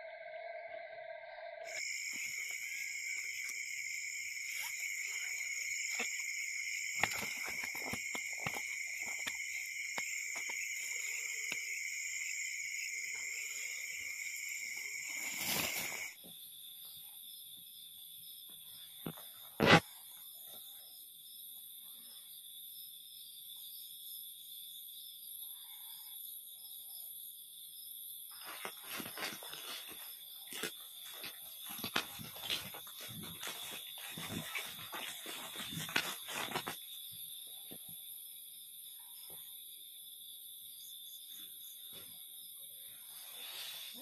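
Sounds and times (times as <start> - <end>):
night insects trilling: 0.0 - 44.0
handling rustles and clicks: 6.9 - 10.6, 28.4 - 36.8.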